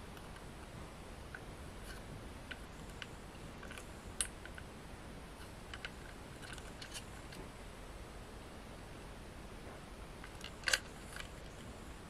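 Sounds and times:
plastic toy train clicks: 10.2s - 11.3s.

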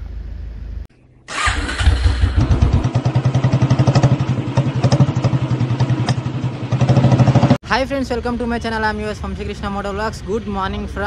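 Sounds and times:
motorcycle engine starting and running: 1.3s - 7.6s.

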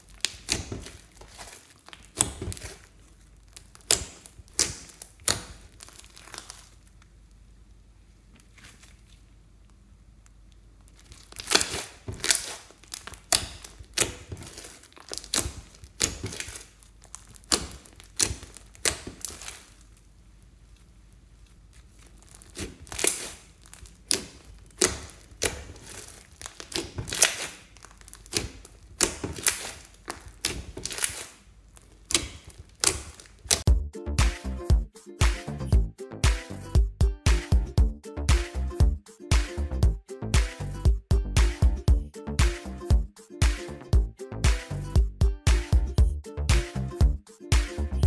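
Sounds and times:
slime crackling and popping: 0.0s - 7.5s, 10.2s - 34.4s.

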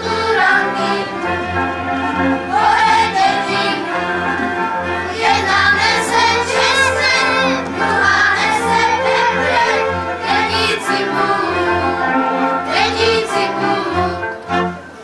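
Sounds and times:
children singing: 0.0s - 14.7s
instrumental accompaniment: 0.0s - 15.0s.

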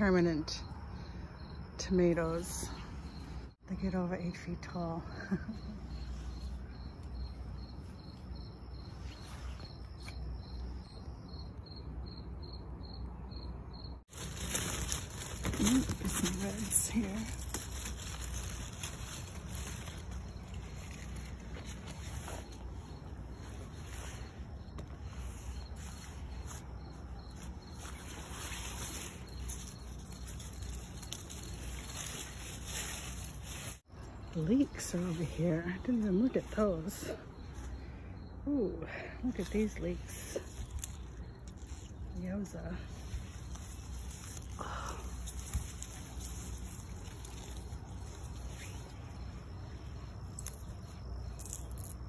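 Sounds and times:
cricket chirping: 0.0s - 52.0s
plant leaves rustling: 14.0s - 37.8s, 39.2s - 52.0s
small crackles: 14.0s - 37.9s, 39.3s - 52.0s.

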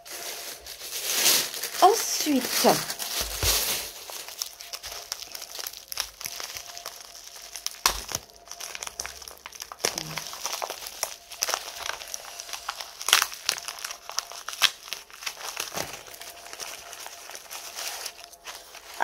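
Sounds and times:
plastic film crinkling: 0.0s - 19.0s.

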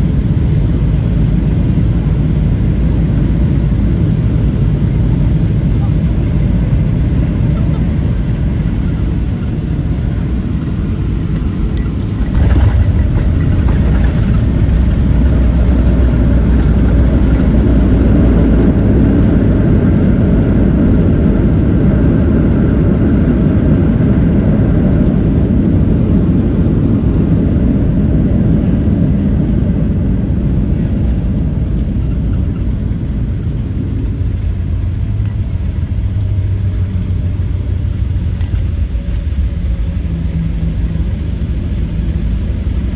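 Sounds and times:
jet engines in reverse thrust: 0.0s - 42.9s
wheels rumbling on runway: 0.0s - 42.9s
airplane touchdown jolt: 12.0s - 18.3s.

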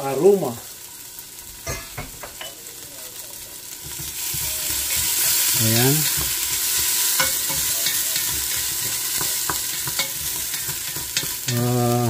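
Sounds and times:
ginger sizzling in hot oil: 0.0s - 12.0s
spoon knocking against metal: 7.2s - 11.6s.

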